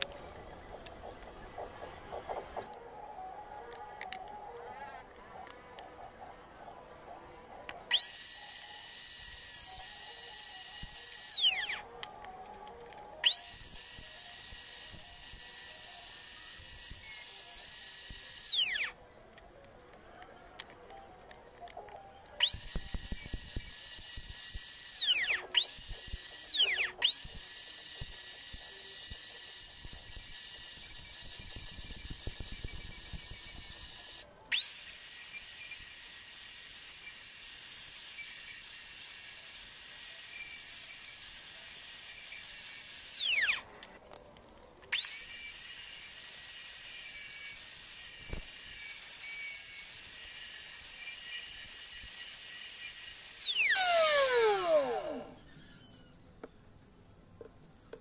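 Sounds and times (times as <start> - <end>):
wood router whining: 7.9 - 19.0, 21.7 - 43.8, 44.9 - 56.0.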